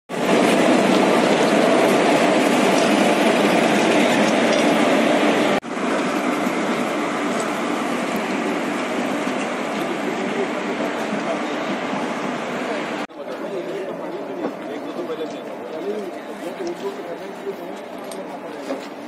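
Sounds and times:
footsteps on railway ballast: 13.3 - 19.0.

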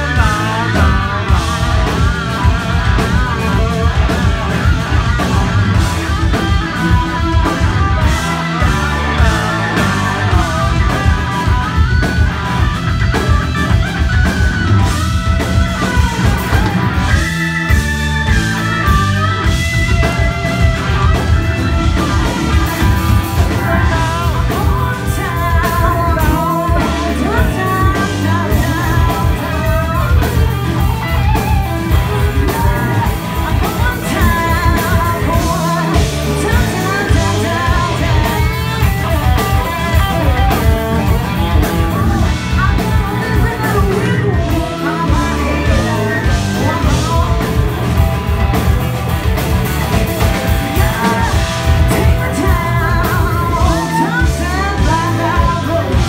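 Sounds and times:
blues rock band playing: 0.0 - 56.0
woman singing: 21.9 - 47.8, 50.5 - 56.0.

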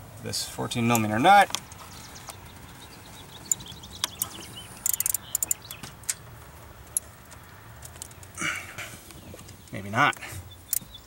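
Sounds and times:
socket ratchet clicking: 3.4 - 6.2.

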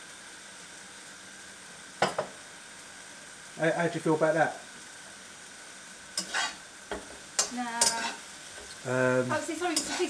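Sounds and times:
beef sizzling in a wok: 0.0 - 10.0
spatula scraping and knocking pan: 6.2 - 8.8, 9.6 - 10.0.

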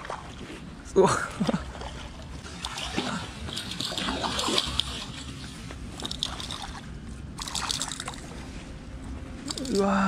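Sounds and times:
lure splashing and gurgling: 1.3 - 8.4, 9.4 - 10.0.

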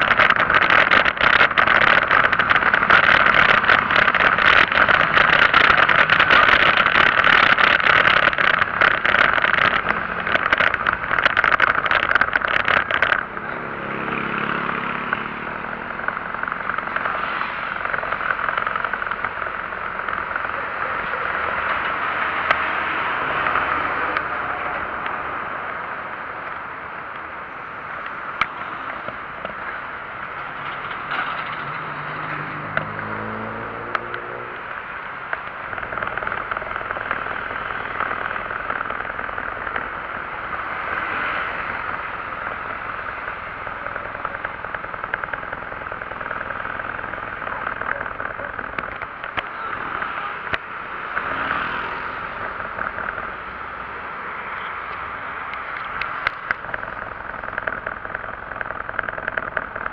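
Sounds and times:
sharp clicks: 0.0 - 13.4, 54.5 - 59.9
wind noise: 0.0 - 53.8
road noise: 0.0 - 59.9.

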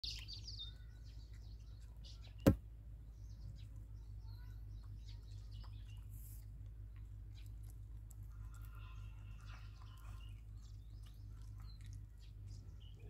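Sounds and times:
small birds chirping: 0.0 - 13.0
dog chewing flatbread: 5.3 - 12.9.

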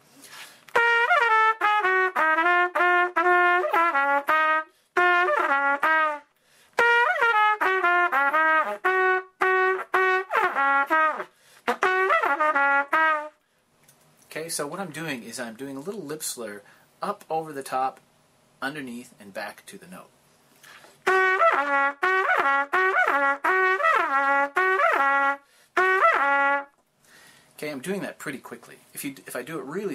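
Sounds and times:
trumpet playing blues phrases: 0.7 - 13.4, 21.0 - 26.8.

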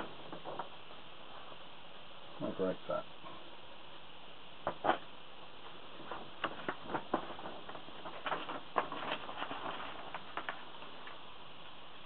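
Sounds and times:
paper poster crackling and rustling: 5.9 - 11.3.

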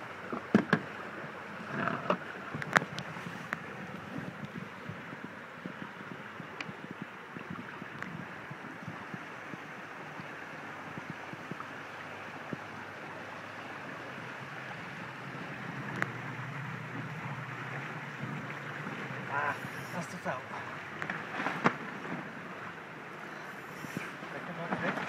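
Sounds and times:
water rushing along hulls: 0.0 - 25.0
wind noise: 1.6 - 20.0.

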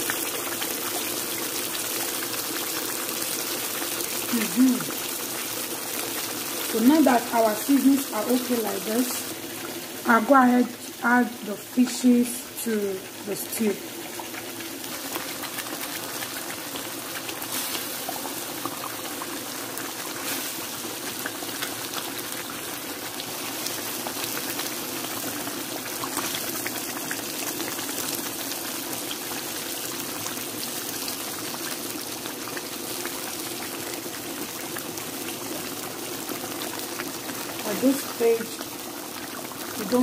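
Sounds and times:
stew simmering with bubbling hiss: 0.0 - 40.0.

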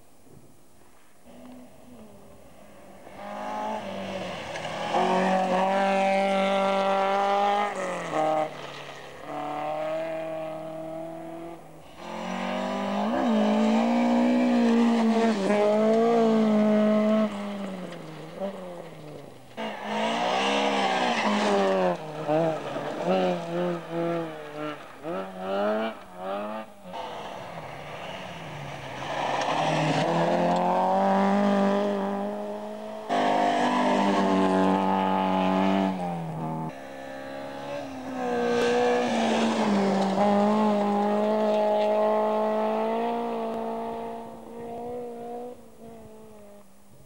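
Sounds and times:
cars passing close by: 1.2 - 46.5
rally car engines revving high: 1.3 - 46.7.

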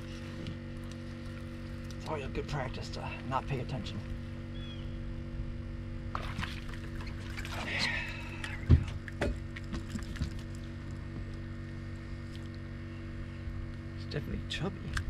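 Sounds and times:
low hum: 0.0 - 15.0
fish splashing: 6.1 - 11.0.

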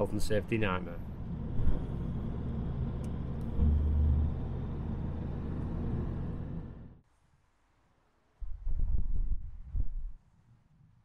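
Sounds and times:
car cabin road rumble: 0.0 - 7.0.

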